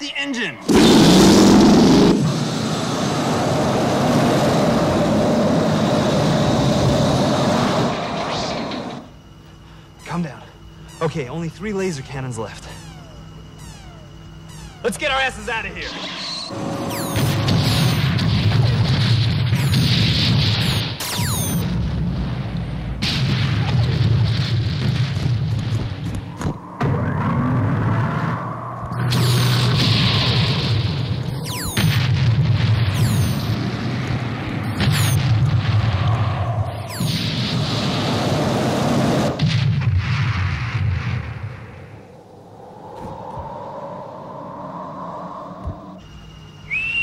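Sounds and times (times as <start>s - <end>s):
explosions rumbling and crackling: 0.6s - 9.0s, 16.5s - 42.0s
falling whistles: 0.6s - 18.8s, 19.5s - 21.6s, 26.2s - 32.0s, 32.9s - 33.6s, 34.6s - 35.2s, 35.9s - 38.0s, 41.8s - 47.0s
sci-fi machine engine hiss: 0.7s - 21.6s
faint steady tone: 7.8s - 18.7s, 41.7s - 47.0s.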